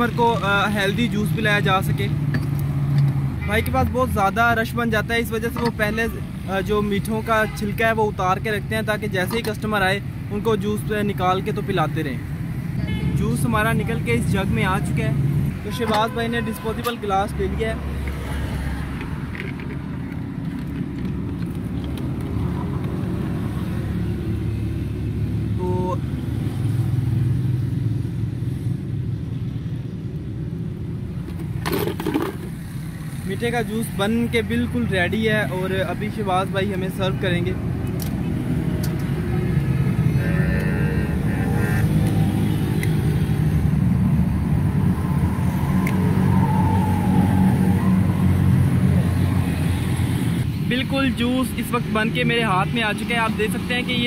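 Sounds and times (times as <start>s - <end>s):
road traffic passing: 0.0s - 54.0s.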